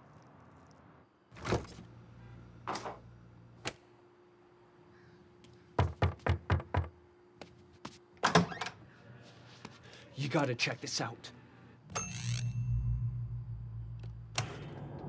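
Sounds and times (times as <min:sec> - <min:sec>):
low steady hum: 0:00.0 - 0:05.8, 0:08.8 - 0:15.0
knocking on wooden door: 0:05.8 - 0:06.9.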